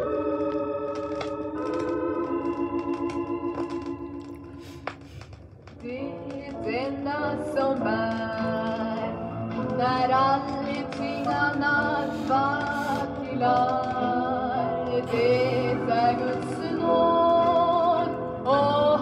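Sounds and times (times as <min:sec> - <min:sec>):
woman singing with vibrato: 0:05.8 - 0:19.0.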